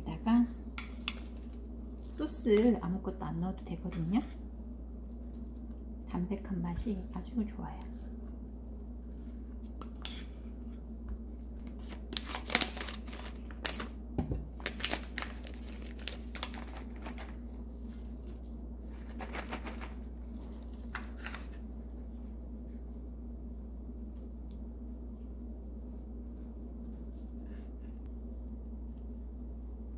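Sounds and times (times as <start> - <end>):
plastic glove crinkles: 0.0 - 22.7
faint low hum: 0.0 - 29.9.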